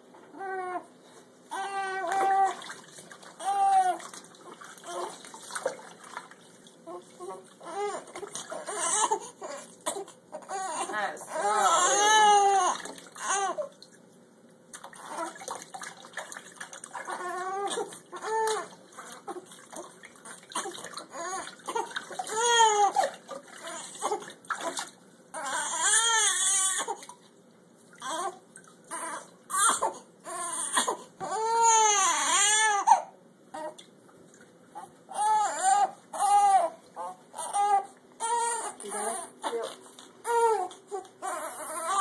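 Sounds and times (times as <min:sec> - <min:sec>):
baby crying: 0:00.3 - 0:00.9, 0:01.5 - 0:02.7, 0:03.4 - 0:04.0, 0:06.9 - 0:13.7, 0:16.9 - 0:19.4, 0:20.5 - 0:27.0, 0:28.0 - 0:33.8, 0:34.8 - 0:42.0.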